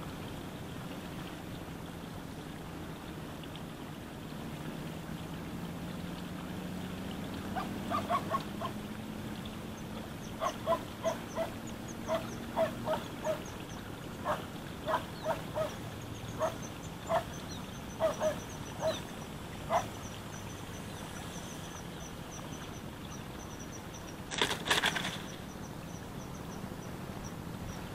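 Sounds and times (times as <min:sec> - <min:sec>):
animal calling: 0:07.4 - 0:08.9, 0:10.0 - 0:24.0
thin high chirping: 0:10.2 - 0:27.9
loud rustle: 0:24.3 - 0:25.4.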